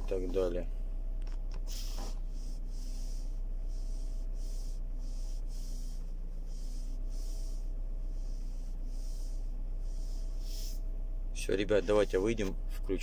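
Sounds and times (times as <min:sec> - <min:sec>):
car interior rumble: 0:00.0 - 0:13.0
faint steady hum: 0:00.0 - 0:13.0
soft hissing pulses: 0:01.6 - 0:11.0.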